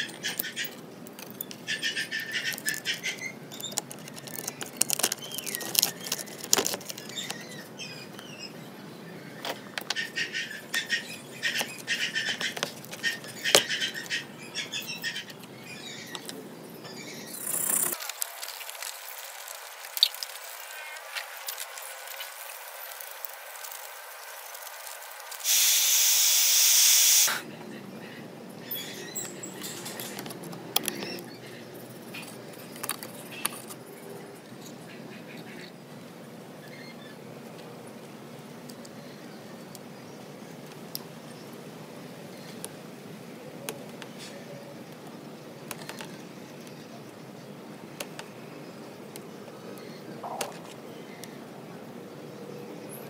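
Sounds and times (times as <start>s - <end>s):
hands handling circuit board: 2.4s - 7.5s
loud steady hiss: 17.4s - 27.5s.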